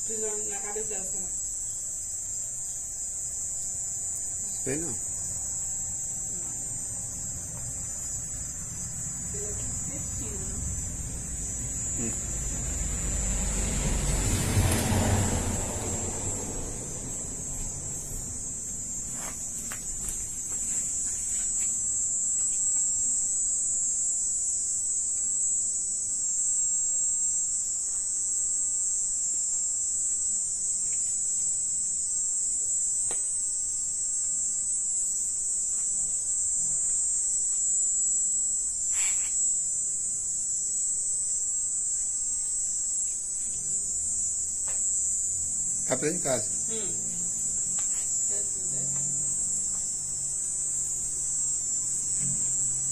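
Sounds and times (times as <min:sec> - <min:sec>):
night insects droning: 0:00.0 - 0:52.9.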